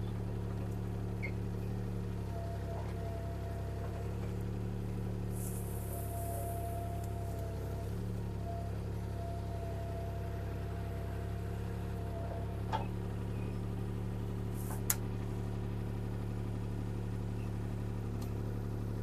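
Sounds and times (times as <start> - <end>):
diesel engine running: 0.0 - 19.0
faint whine: 5.3 - 11.4.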